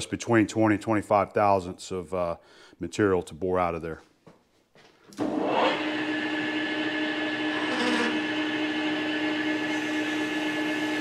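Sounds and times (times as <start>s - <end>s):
metal lathe humming and whining: 5.2s - 11.0s.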